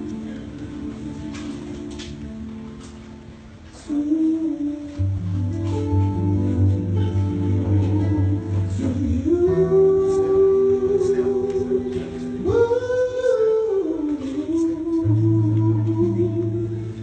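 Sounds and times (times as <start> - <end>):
person singing long notes: 3.8 - 17.0
steady bass notes: 4.7 - 17.0.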